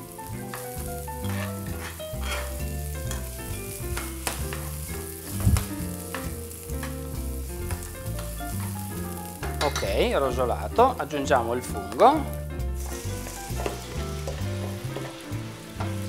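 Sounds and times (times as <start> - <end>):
background music: 0.0 - 16.0
vegetables sizzling in a frying pan: 0.0 - 16.0.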